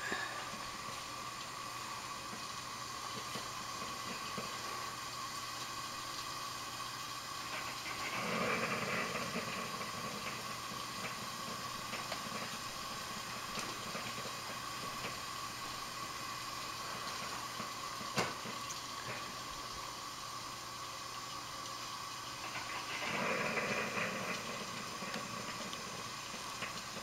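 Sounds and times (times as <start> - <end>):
loud breathy noise: 0.0 - 0.6
kettle hissing on gas burner: 0.0 - 27.0.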